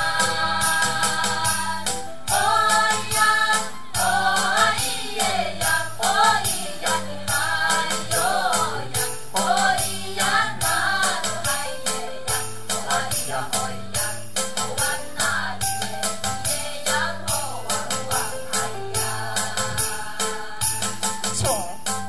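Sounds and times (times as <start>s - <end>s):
group of voices singing: 0.0s - 21.7s
jingling percussion beat: 0.0s - 22.0s.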